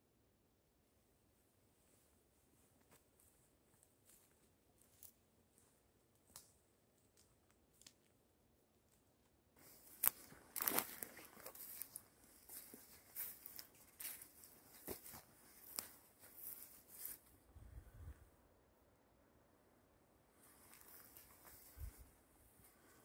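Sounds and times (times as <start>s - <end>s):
footsteps crunching through undergrowth: 2.6s - 6.4s, 9.6s - 17.3s, 20.4s - 23.0s
sharp crackles: 9.6s - 17.2s.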